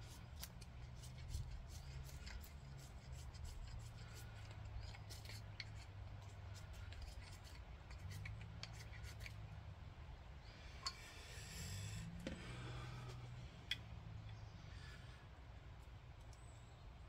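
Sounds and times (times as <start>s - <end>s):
knife shaving wood: 0.0s - 9.4s.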